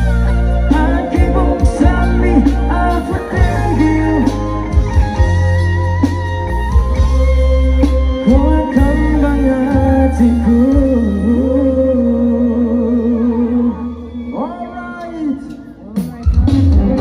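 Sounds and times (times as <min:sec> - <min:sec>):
heavy bass: 0:00.0 - 0:17.0
person singing long notes: 0:00.6 - 0:04.8, 0:08.2 - 0:14.3.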